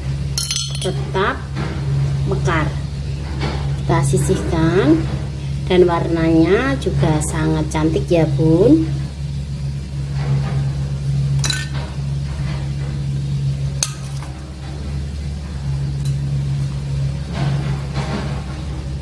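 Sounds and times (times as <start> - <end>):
steady low hum: 0.0 - 19.0
metal cups clinking on plastic trays: 0.4 - 1.0.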